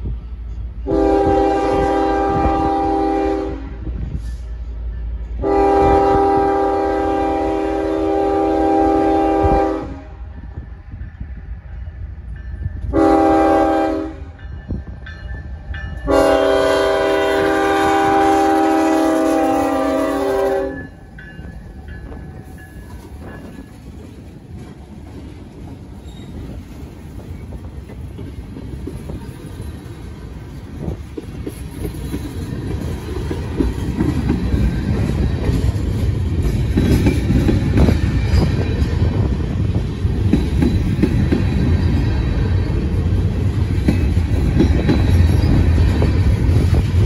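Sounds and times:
steel wheels rumbling on rail: 0.0s - 47.0s
locomotive air horn blasts: 0.8s - 3.9s, 5.4s - 10.3s, 12.9s - 14.4s, 16.0s - 21.0s.

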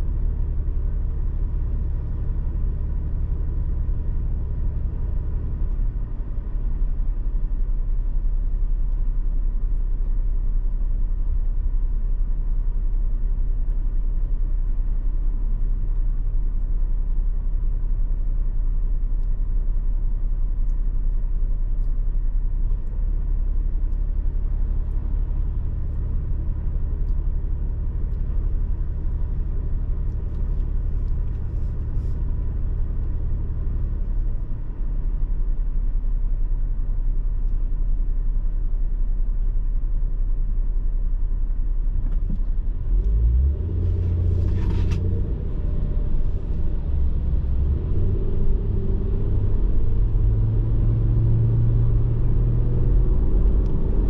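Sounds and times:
car engine idling: 20.3s - 53.9s
car accelerating with road noise: 42.0s - 54.0s.

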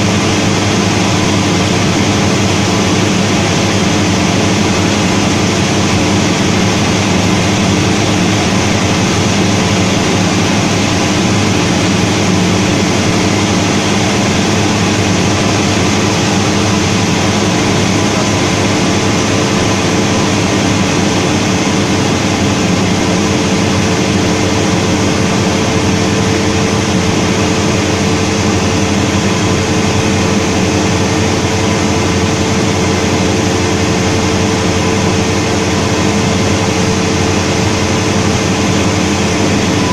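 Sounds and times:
airplane engine and propeller drone: 0.0s - 39.9s.

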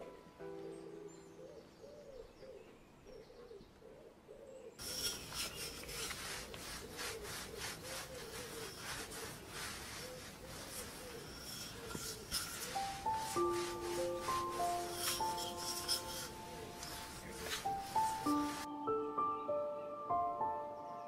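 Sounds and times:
rolling pin rubbing over dough: 4.8s - 18.7s.

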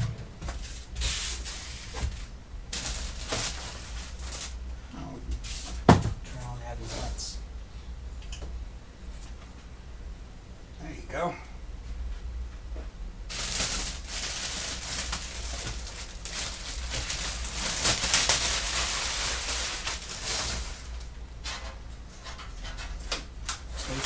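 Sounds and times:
packaging rustling: 1.4s - 4.6s, 13.3s - 21.1s.

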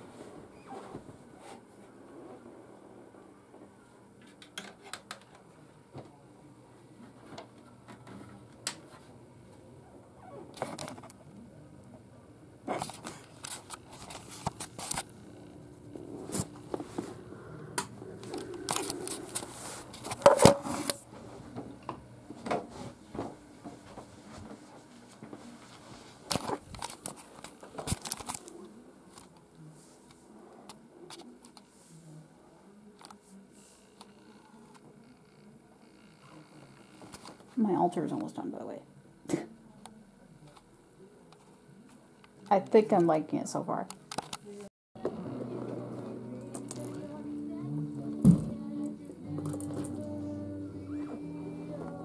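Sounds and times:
objects knocking: 20.0s - 20.9s.

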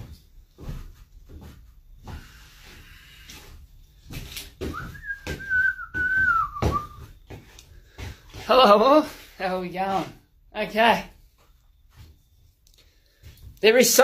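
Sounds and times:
boots stepping on wooden floor: 0.0s - 10.3s
person whistling: 4.7s - 7.2s.

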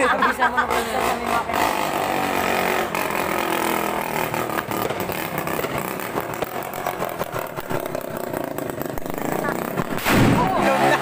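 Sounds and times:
firecrackers popping: 4.2s - 11.0s.

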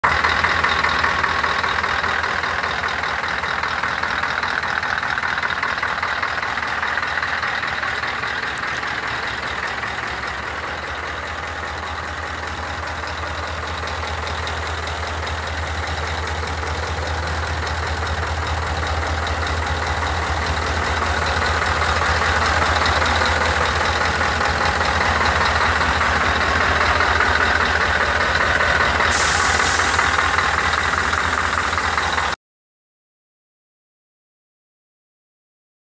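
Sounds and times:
diesel truck engine idling: 0.0s - 32.4s
short hiss: 29.1s - 30.2s.

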